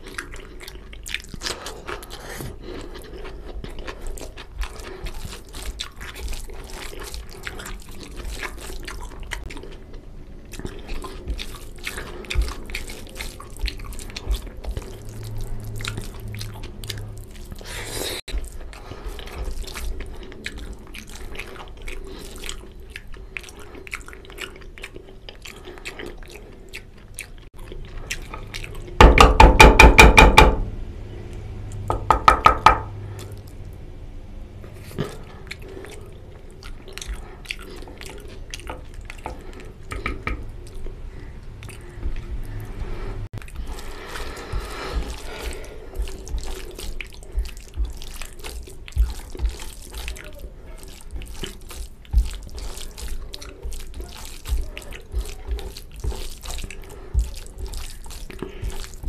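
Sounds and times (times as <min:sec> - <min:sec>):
chewing and lip smacks: 0:00.0 - 0:29.1, 0:33.0 - 0:33.8, 0:34.6 - 0:59.0
wet eating sounds: 0:00.0 - 0:30.4, 0:31.1 - 0:33.9, 0:34.6 - 0:59.0
fingers squishing rice: 0:43.4 - 0:59.0.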